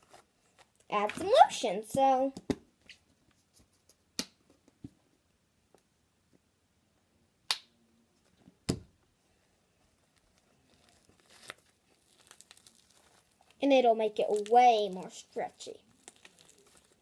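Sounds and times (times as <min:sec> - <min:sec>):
slime squishing: 0:09.9 - 0:17.0.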